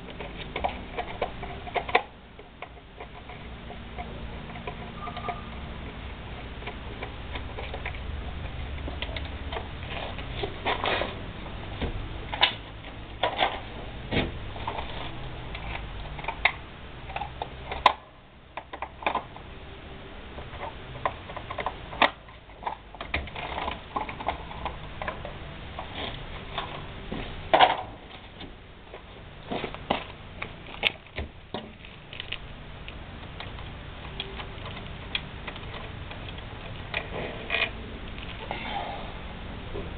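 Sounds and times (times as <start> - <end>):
low steady hum: 0.0 - 39.9.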